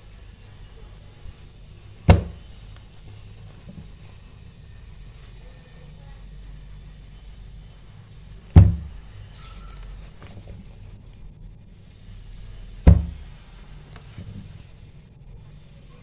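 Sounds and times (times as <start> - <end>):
dull thumps of pages: 2.0 - 2.5, 8.6 - 10.7, 12.8 - 14.6
paper rustling: 9.3 - 10.8.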